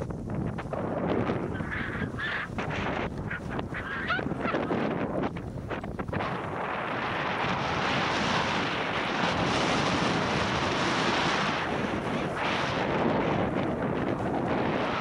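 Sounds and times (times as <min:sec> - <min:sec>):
wind over microphone: 0:00.0 - 0:15.0
skis hissing over snow: 0:06.2 - 0:15.0.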